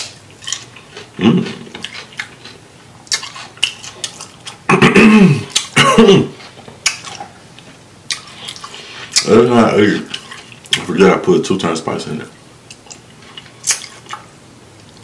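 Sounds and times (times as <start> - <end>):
cucumber crunching while chewing: 0.0 - 4.7, 5.4 - 9.4, 12.7 - 15.0.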